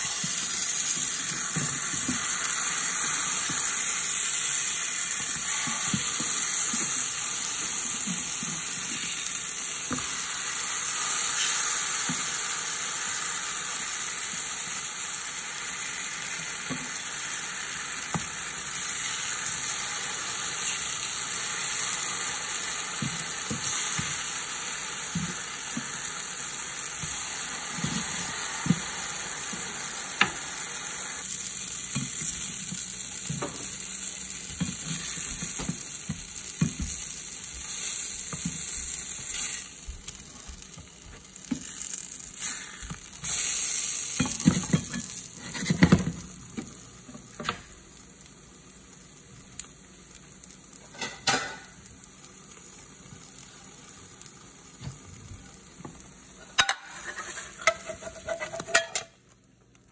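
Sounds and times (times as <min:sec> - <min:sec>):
pancakes sizzling in a frying pan: 0:00.0 - 0:59.9
spatula scraping a pan: 0:42.4 - 0:46.0, 0:56.4 - 0:59.1.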